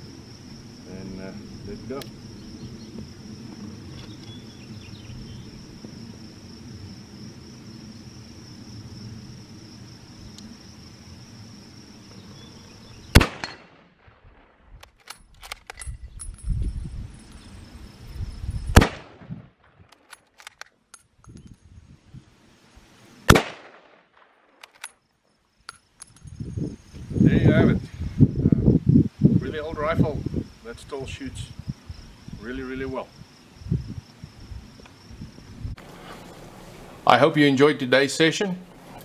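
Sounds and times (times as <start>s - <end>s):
crickets chirping: 0.0s - 39.0s
rifle shots: 13.1s - 15.7s, 18.8s - 19.8s, 23.3s - 24.8s
rifle bolt clicks: 14.8s - 16.0s, 19.9s - 21.5s, 24.6s - 25.0s.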